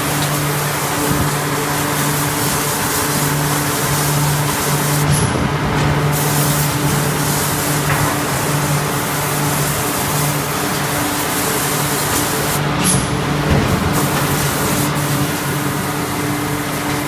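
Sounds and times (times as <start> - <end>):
low machine hum: 0.0 - 17.0
loud hiss of forging press: 6.0 - 17.0.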